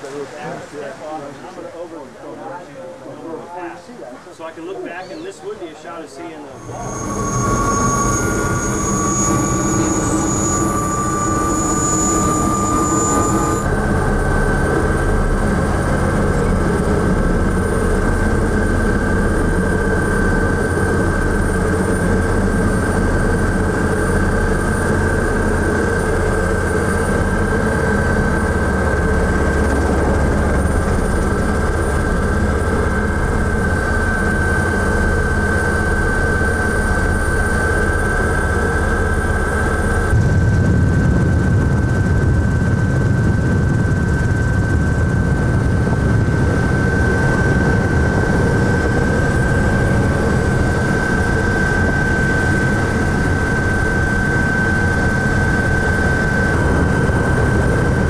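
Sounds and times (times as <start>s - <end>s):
propeller aircraft engine drone: 6.5s - 58.0s.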